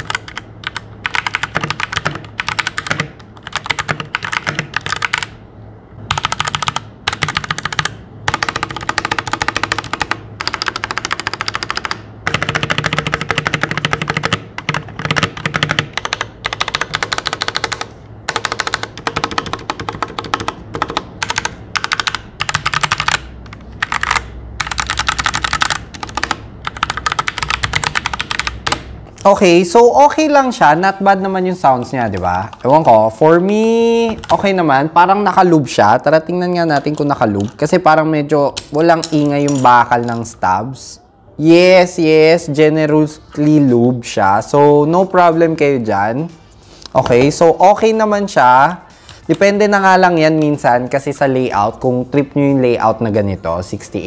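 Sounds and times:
mechanical keyboard typing: 0:00.0 - 0:05.4, 0:06.1 - 0:28.9.

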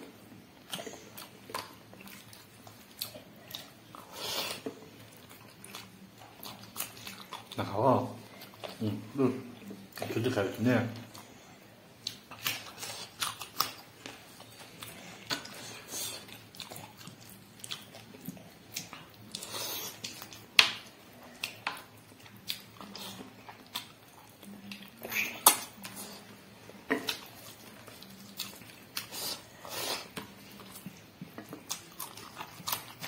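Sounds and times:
person chewing and biting food: 0:00.6 - 0:07.7, 0:12.0 - 0:33.0.

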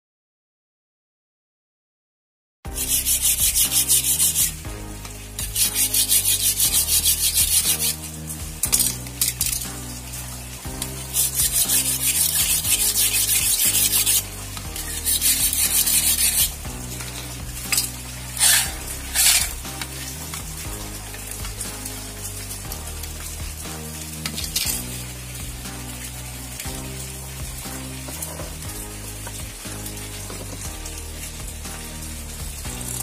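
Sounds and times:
background music: 0:02.7 - 0:33.0
knife scraping on sharpener: 0:02.8 - 0:04.5, 0:05.6 - 0:08.0, 0:11.2 - 0:14.2, 0:14.8 - 0:16.5, 0:17.7 - 0:19.6.

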